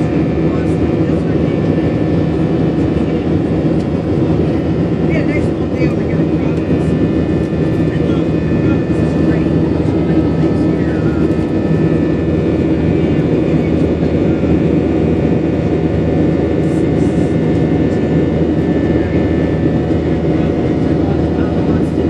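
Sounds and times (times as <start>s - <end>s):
high engine whine: 0.0s - 22.0s
jet engines rumbling: 0.0s - 22.0s.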